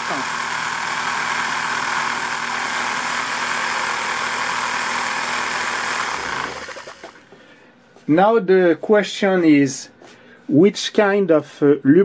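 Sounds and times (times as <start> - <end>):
small electric power tool running: 0.0 - 7.3.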